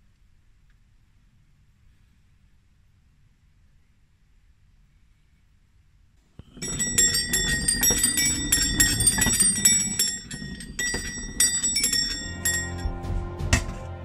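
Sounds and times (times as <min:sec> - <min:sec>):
metal bells ringing: 0:06.4 - 0:13.7
wheels rumbling on surface: 0:06.4 - 0:13.9.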